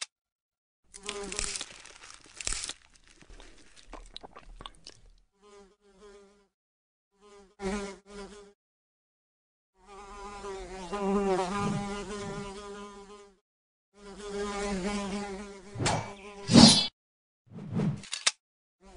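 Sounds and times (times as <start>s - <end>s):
fly buzzing: 0.9s - 1.8s, 5.4s - 6.6s, 7.2s - 8.6s, 9.8s - 13.4s, 14.0s - 16.9s.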